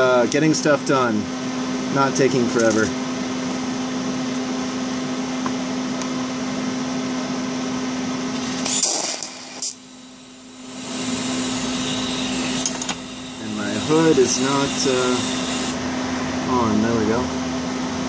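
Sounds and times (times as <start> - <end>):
welding machine electrical hum: 0.0 - 18.0
torch hissing bursts: 8.6 - 15.8.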